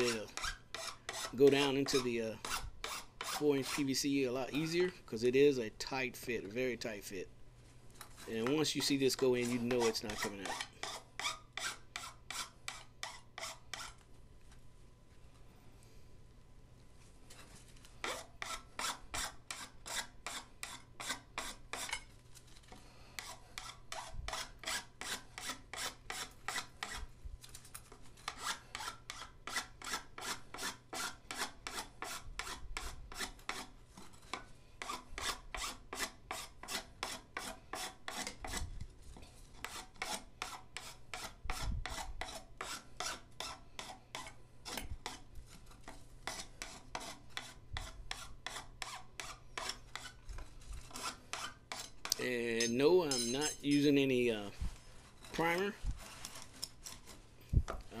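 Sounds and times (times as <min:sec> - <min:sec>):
file rasping on plastic pipe: 0:00.0 - 0:03.8, 0:08.1 - 0:14.0, 0:18.0 - 0:22.1, 0:23.1 - 0:27.1, 0:28.2 - 0:38.7, 0:39.6 - 0:53.7.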